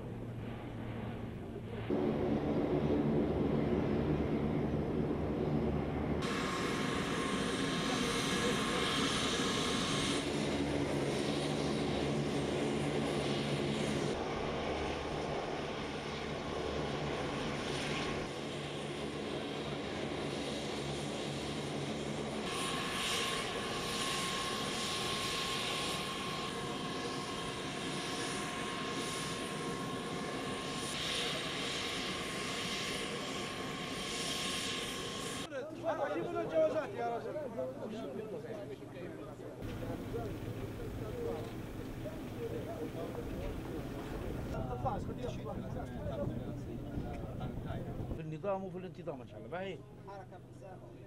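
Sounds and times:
high engine whine: 0:00.0 - 0:18.8, 0:39.6 - 0:48.2
turboprop engines droning: 0:00.0 - 0:35.5, 0:39.6 - 0:48.2.

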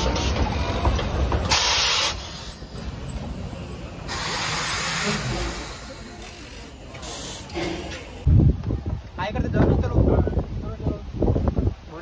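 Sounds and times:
steam locomotive hissing: 0:00.0 - 0:08.3.

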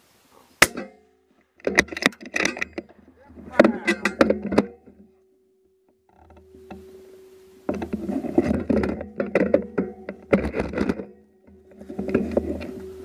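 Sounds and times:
handling clicks and rustling: 0:00.7 - 0:13.0.

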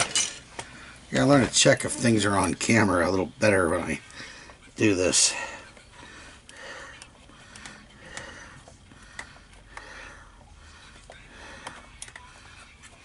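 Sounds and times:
soft breathing: 0:00.5 - 0:01.1, 0:04.0 - 0:13.0.

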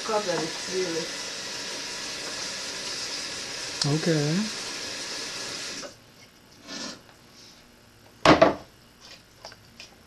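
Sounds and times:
tap water running into pot: 0:00.0 - 0:06.0
pot knocking on counter: 0:08.2 - 0:08.7.

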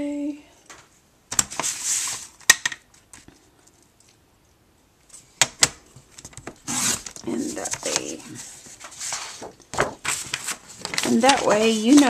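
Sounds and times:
paper sheet rustling: 0:01.5 - 0:02.4, 0:06.7 - 0:12.0.

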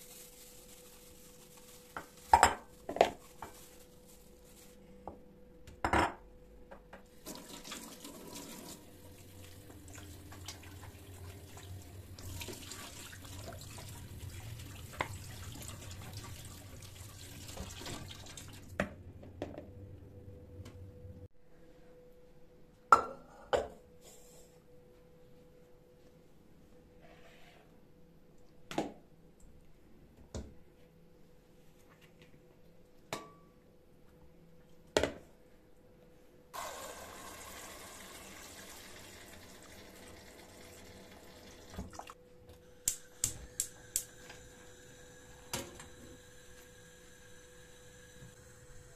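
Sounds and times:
tap water running into colander: 0:07.2 - 0:18.8, 0:36.6 - 0:42.2.

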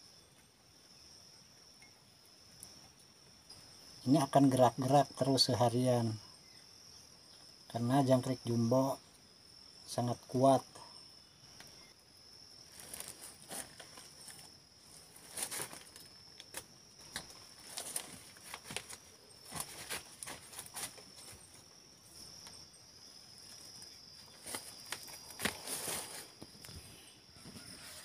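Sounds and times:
insects chirring: 0:00.0 - 0:28.0
footsteps on dry leaves: 0:17.6 - 0:21.5, 0:24.4 - 0:26.4.

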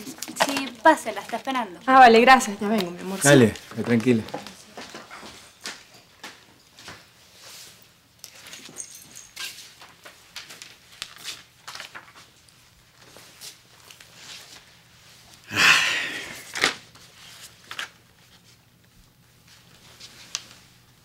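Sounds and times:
magazine pages rustling and turning: 0:09.8 - 0:15.0, 0:16.5 - 0:18.6.

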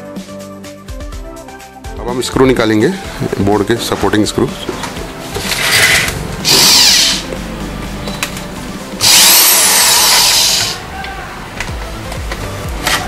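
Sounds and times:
drill motor whine: 0:05.5 - 0:07.3, 0:09.0 - 0:10.8.

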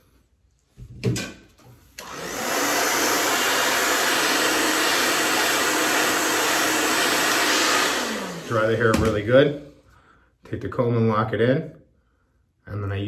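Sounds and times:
hair dryer blowing: 0:01.9 - 0:09.6.

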